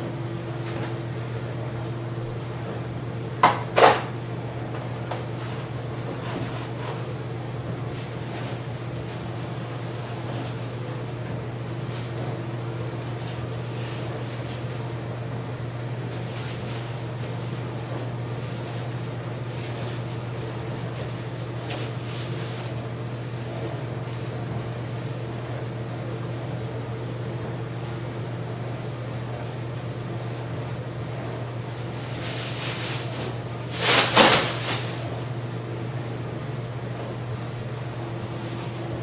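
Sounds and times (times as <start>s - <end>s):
plastic bag rustling: 31.6s - 35.2s.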